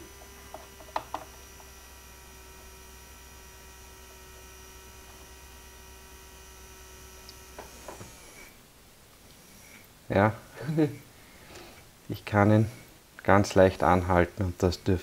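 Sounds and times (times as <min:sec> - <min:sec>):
small motor humming with whine: 0:00.0 - 0:08.7, 0:09.3 - 0:09.9.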